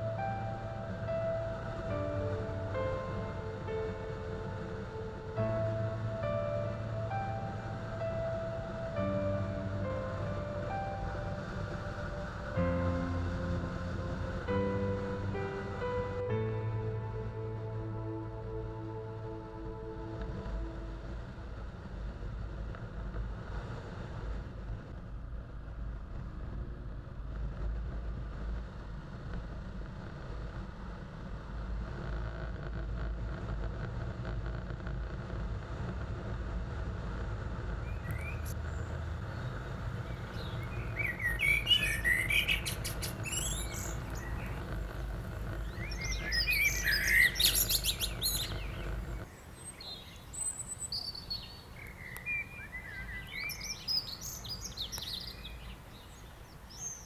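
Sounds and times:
motorcycle engine rumbling: 0:32.8 - 0:50.9
birds singing: 0:37.9 - 0:57.0.

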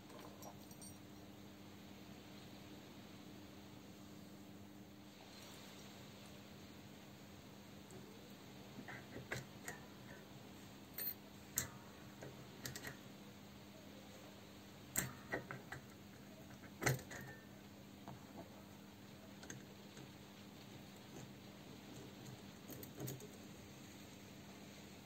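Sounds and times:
faint steady hum: 0:00.0 - 0:25.0
small metal parts clicking: 0:10.9 - 0:13.0, 0:14.9 - 0:17.4.

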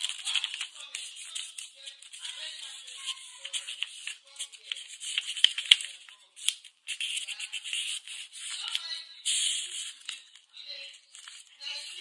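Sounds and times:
paper folds clicking: 0:00.0 - 0:01.1, 0:03.1 - 0:09.4
paper rustling and crackling: 0:00.0 - 0:12.0.

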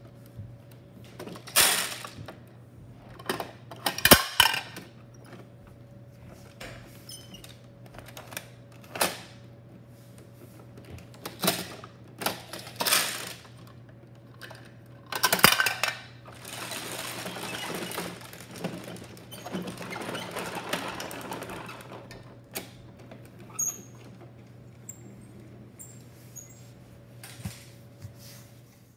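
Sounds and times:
plastic scraping and rattling: 0:14.4 - 0:24.4.

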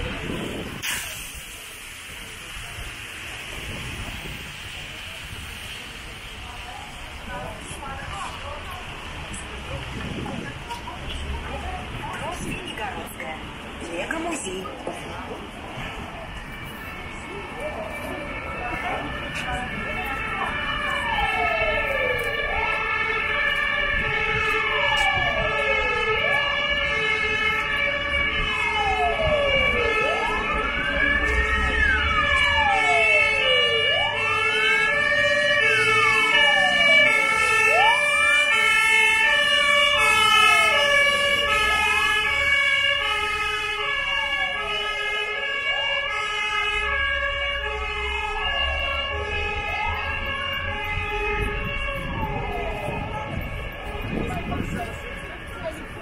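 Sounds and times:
low traffic rumble: 0:00.0 - 0:56.0
stepping fire engine siren: 0:00.0 - 0:56.0
wailing fire engine siren: 0:00.0 - 0:56.0.

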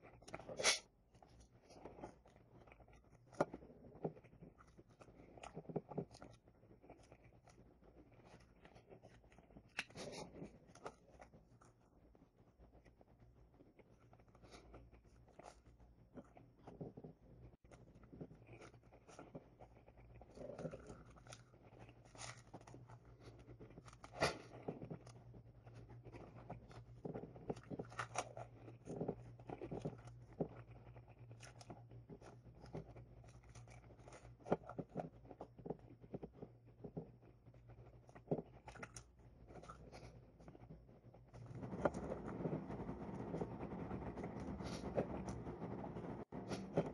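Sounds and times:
chewing and biting: 0:00.0 - 0:46.9
low steady hum: 0:00.0 - 0:46.9
hands tearing bread rolls: 0:17.5 - 0:42.2.

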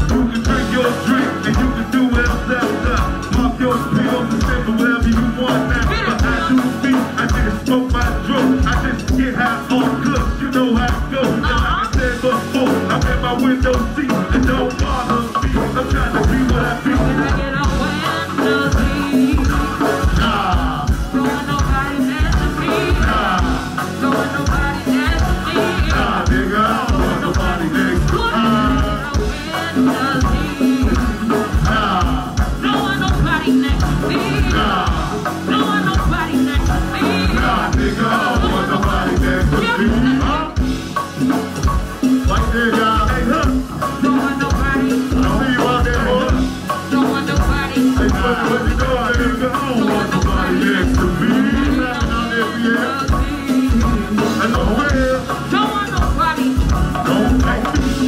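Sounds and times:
live band music: 0:00.0 - 0:58.0
steady drum beat: 0:00.0 - 0:58.0.

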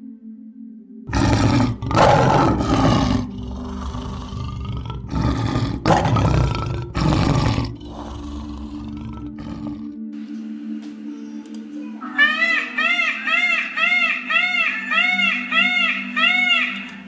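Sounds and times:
lion roaring: 0:01.1 - 0:10.0.

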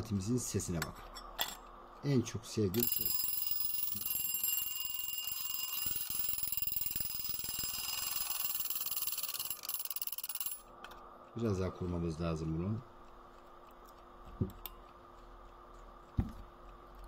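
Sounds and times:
alarm clock bells ringing: 0:02.8 - 0:10.6.

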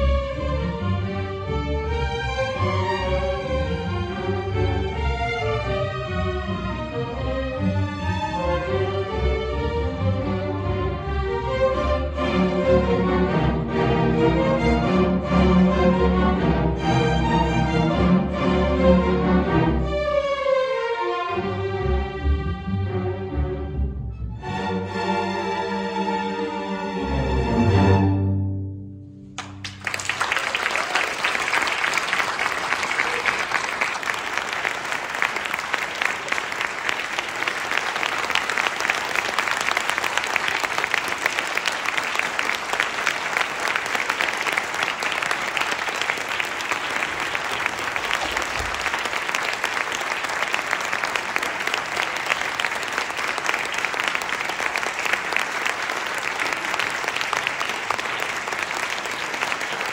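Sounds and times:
large audience clapping: 0:29.4 - 0:59.9.

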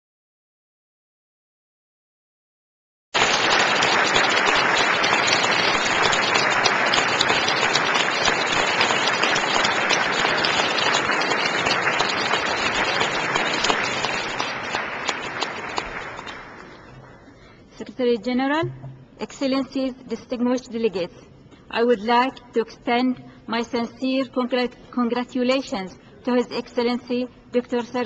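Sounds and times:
crowd applauding: 0:03.2 - 0:17.2.

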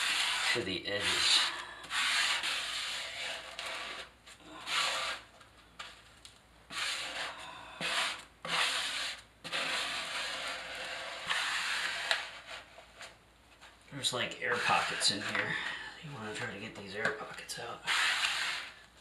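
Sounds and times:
plastic spatula scraping membrane: 0:00.0 - 0:05.9, 0:06.7 - 0:13.2, 0:14.0 - 0:15.6, 0:16.3 - 0:18.9.

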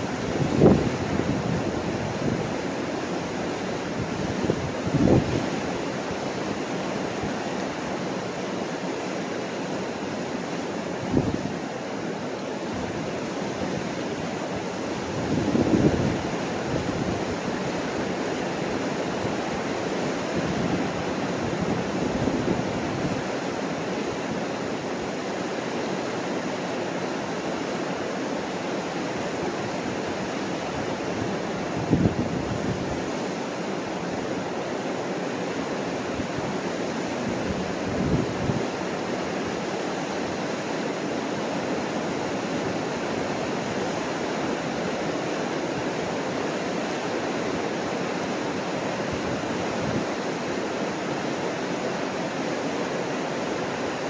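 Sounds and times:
wind buffeting microphone: 0:00.0 - 0:02.6, 0:03.9 - 0:05.6, 0:15.0 - 0:17.4, 0:31.2 - 0:33.0
river rushing over rapids: 0:00.0 - 0:54.0.

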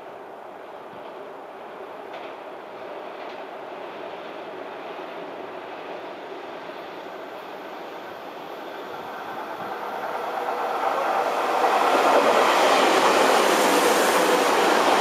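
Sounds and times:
electric train passing: 0:03.7 - 0:15.0.

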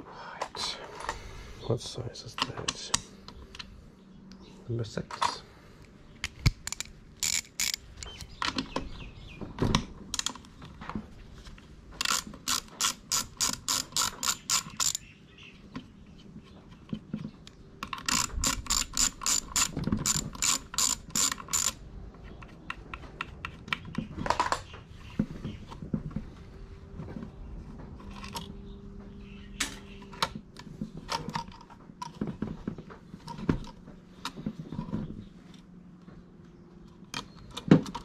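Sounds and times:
ratchet driver clicking: 0:06.2 - 0:08.3, 0:12.0 - 0:15.0, 0:17.8 - 0:21.8
tools and metal parts knocking: 0:06.6 - 0:08.8, 0:12.0 - 0:15.0, 0:16.8 - 0:21.8.

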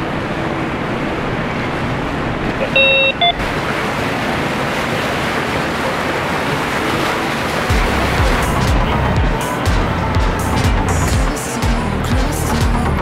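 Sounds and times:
boat engines rushing: 0:00.0 - 0:13.0
churning wake water: 0:00.0 - 0:13.0
two-part tone: 0:02.6 - 0:03.4.

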